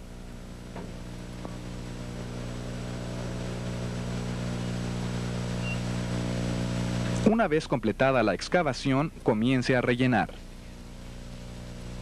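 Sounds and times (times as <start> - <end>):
loader engine humming: 0.0 - 7.4.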